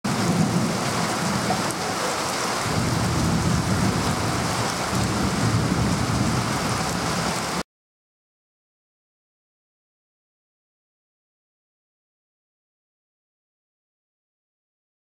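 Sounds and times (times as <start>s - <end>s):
low rumble of thunder: 0.1s - 1.8s, 2.6s - 7.6s
heavy rain pouring: 0.1s - 7.6s.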